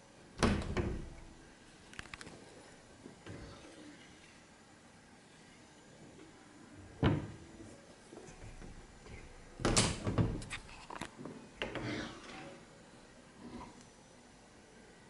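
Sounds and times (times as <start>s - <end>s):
wardrobe doors clicking and rattling: 0.4s - 1.3s, 7.0s - 7.4s, 9.6s - 10.5s.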